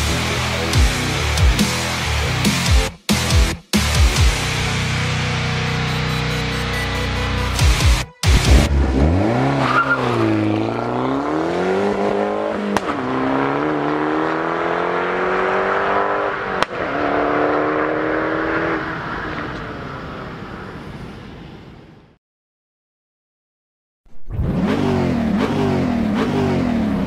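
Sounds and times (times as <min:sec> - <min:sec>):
car engine accelerating hard: 0:08.4 - 0:19.6, 0:24.3 - 0:27.0.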